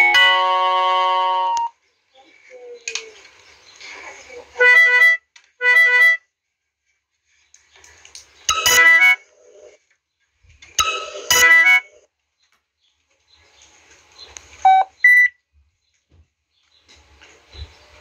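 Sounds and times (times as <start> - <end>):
harsh electronic warning tones: 8.5 - 9.2, 10.8 - 12.0
short electronic beeps: 8.5 - 9.2, 14.7 - 15.3.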